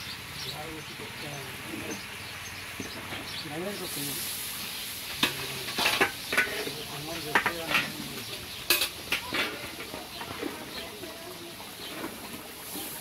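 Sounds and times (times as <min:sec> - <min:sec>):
food sizzling: 0:00.0 - 0:13.0
metal ladle scraping pan: 0:05.1 - 0:08.1, 0:08.7 - 0:10.8.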